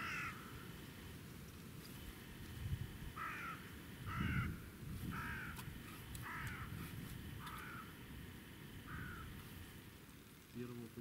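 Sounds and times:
crow cawing: 0:00.0 - 0:00.7, 0:03.1 - 0:08.1, 0:08.8 - 0:09.5.

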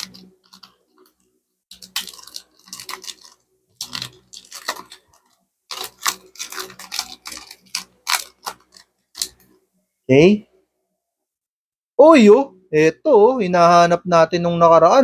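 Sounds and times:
trading cards rustling: 0:00.0 - 0:09.6.

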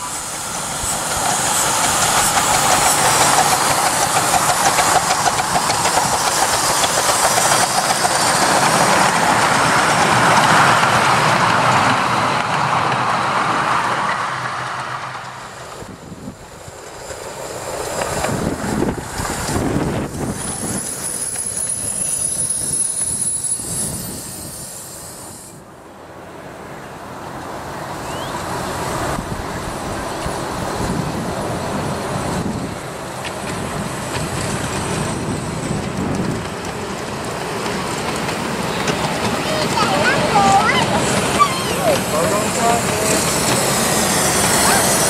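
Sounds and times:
steam locomotive exhaust: 0:00.0 - 0:25.8, 0:27.6 - 0:45.0
high wheel squeal: 0:20.2 - 0:25.6, 0:38.6 - 0:45.0
wheels running over track: 0:32.2 - 0:45.0.

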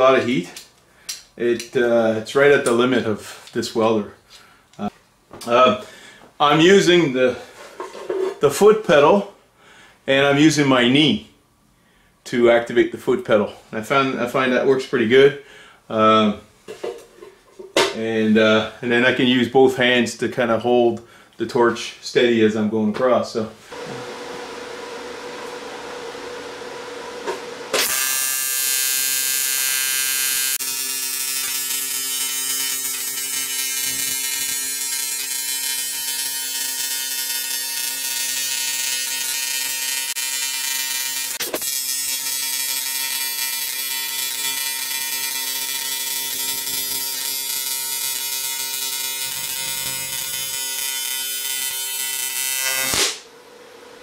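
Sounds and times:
welder humming: 0:23.7 - 0:53.3
welding arc buzzing: 0:25.4 - 0:53.3
sharp crack: 0:52.8 - 0:53.3.

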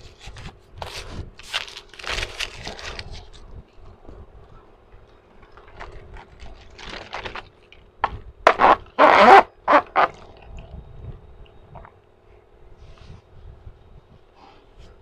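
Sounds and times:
plastic straw squeaking in cup lid: 0:08.5 - 0:10.2.

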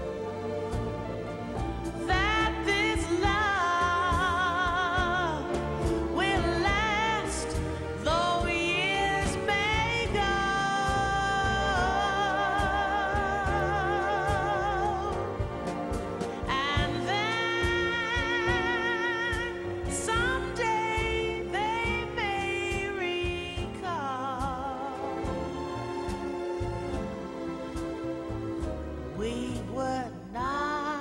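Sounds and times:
instrumental accompaniment: 0:00.0 - 0:31.0
person singing with vibrato: 0:02.0 - 0:15.7, 0:16.4 - 0:25.5.

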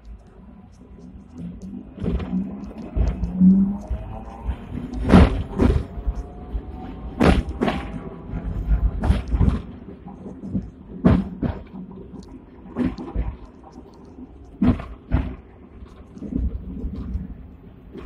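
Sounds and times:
tram wheels clunking over rail joints: 0:01.8 - 0:13.9.

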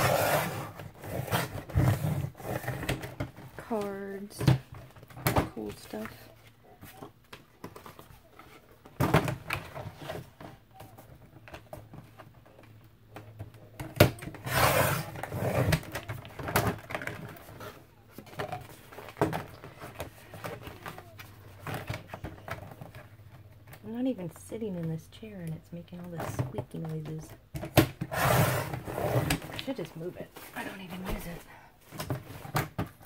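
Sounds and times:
cardboard scraping rustle: 0:00.0 - 0:03.8, 0:28.1 - 0:31.4.

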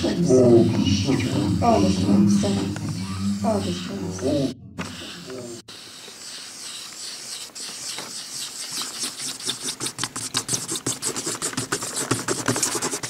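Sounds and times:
steady hiss: 0:00.0 - 0:09.8
scratching and scraping strokes: 0:00.0 - 0:13.0.

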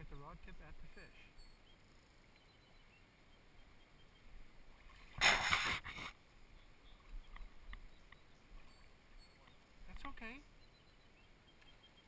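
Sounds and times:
water splashing: 0:04.7 - 0:06.2.

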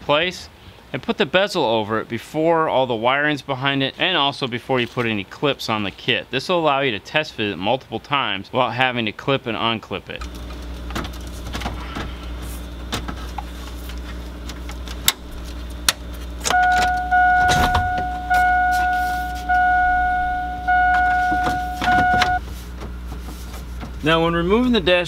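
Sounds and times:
warning chime dinging: 0:16.5 - 0:22.4.

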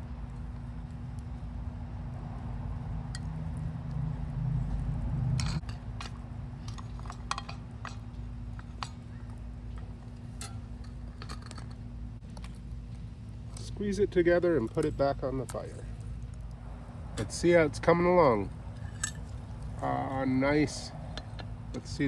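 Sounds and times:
low steady rumble: 0:00.0 - 0:22.0
utensils clicking and tapping: 0:05.4 - 0:09.0.

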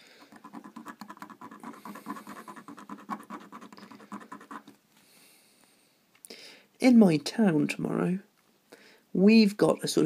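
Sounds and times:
needle file rasping on metal: 0:00.3 - 0:04.7.

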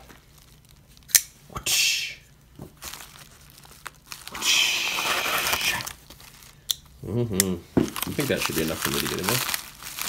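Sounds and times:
plastic mailer crinkling: 0:02.8 - 0:06.6, 0:07.9 - 0:10.0.

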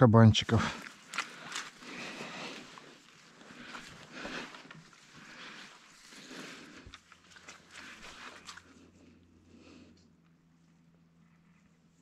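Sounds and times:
rustling in grass and reeds: 0:00.6 - 0:09.2.

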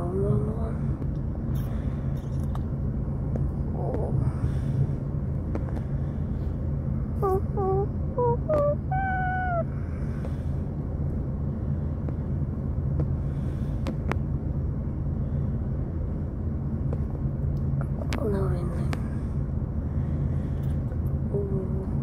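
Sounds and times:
car cabin rumble: 0:00.0 - 0:15.1
high-pitched vocal calls: 0:07.2 - 0:09.9.

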